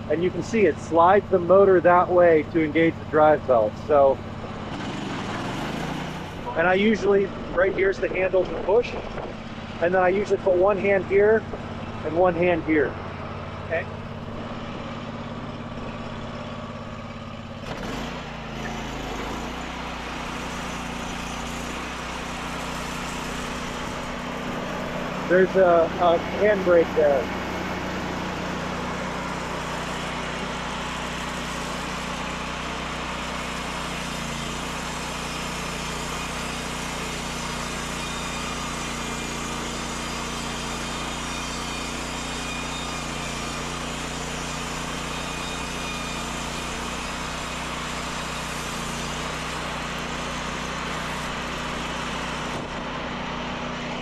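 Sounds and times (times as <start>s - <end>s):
sawmill engine running: 0.0s - 54.0s
band blade cutting log: 3.9s - 7.2s, 17.6s - 54.0s.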